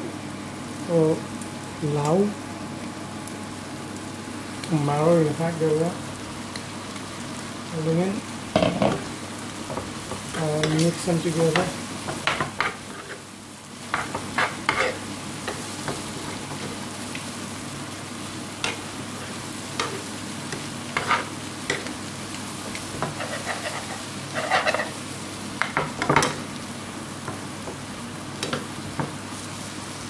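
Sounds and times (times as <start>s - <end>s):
food sizzling in a frying pan: 0.0s - 30.0s
spoon scraping and knocking pan: 8.6s - 9.1s, 11.5s - 13.2s, 13.9s - 16.8s, 19.8s - 21.9s, 22.7s - 25.0s.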